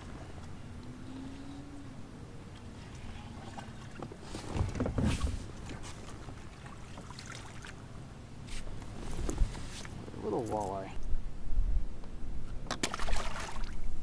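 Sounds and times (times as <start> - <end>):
water: 0.0 - 11.2, 12.3 - 14.0
wind: 0.0 - 14.0
fish splashing at water surface: 12.8 - 13.8.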